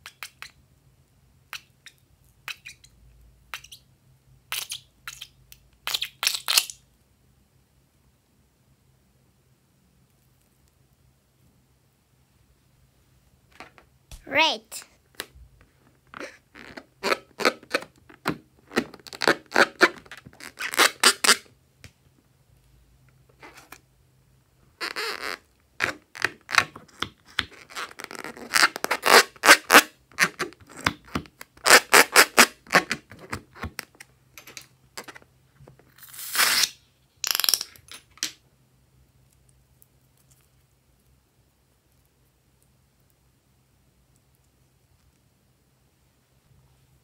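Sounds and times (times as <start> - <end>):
balloon squeaking under fingers: 16.2 - 17.8, 18.7 - 21.5, 24.8 - 27.0, 27.6 - 33.0.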